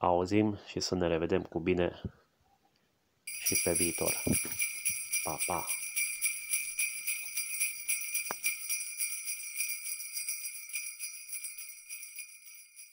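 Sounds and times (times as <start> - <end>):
jingle bells shaking: 3.3 - 12.9.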